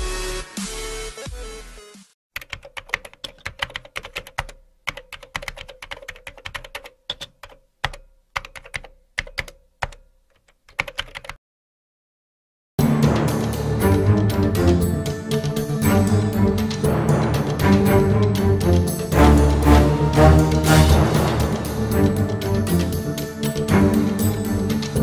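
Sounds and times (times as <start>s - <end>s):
electronic music: 12.8s - 25.0s.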